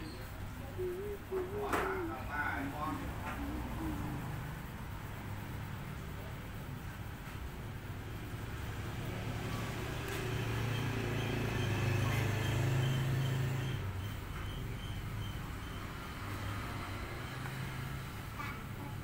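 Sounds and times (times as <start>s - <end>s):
passing vehicle engine hum: 0.0s - 19.0s.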